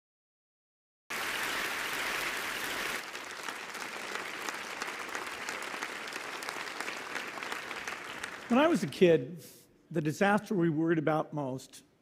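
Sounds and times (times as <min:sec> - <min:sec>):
audience applauding: 0:01.1 - 0:08.9.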